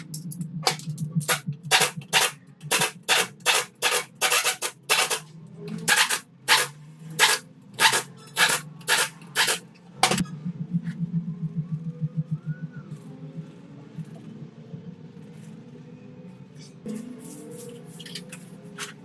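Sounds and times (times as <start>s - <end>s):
pneumatic impact wrench bursts: 1.7s - 5.2s, 5.9s - 9.6s.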